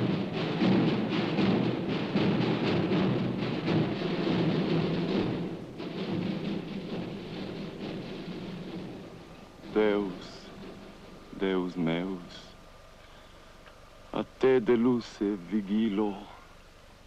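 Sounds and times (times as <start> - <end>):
drum roll: 0.0 - 13.3.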